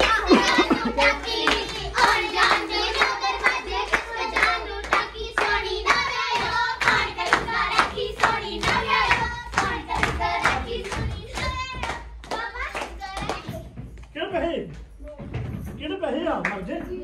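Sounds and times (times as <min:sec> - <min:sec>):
group singing folk songs: 0:00.0 - 0:12.5
group clapping hands: 0:00.0 - 0:13.6, 0:16.4 - 0:17.0.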